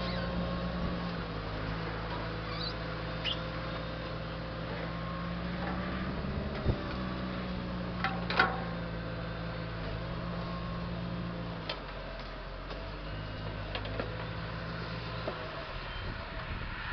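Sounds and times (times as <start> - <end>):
crane arm squeaks and knocks: 0.0 - 0.5, 2.2 - 4.3.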